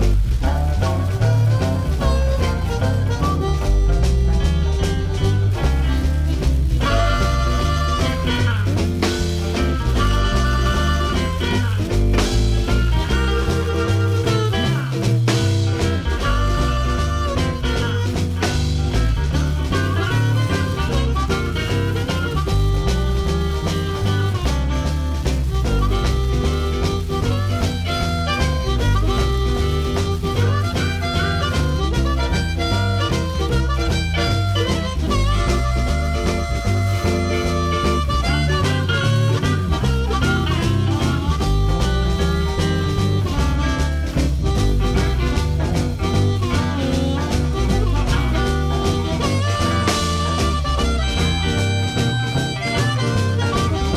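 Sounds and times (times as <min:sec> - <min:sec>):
electric blues band music: 0:00.0 - 0:53.9.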